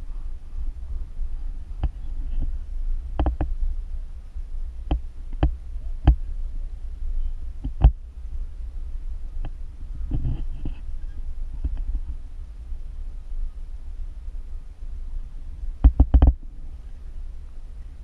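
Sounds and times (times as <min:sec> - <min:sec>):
low rumble of wind and road: 0:00.0 - 0:18.0.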